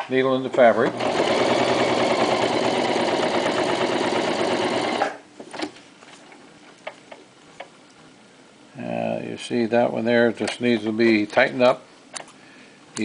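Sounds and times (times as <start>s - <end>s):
sewing machine stitching: 0.6s - 5.2s.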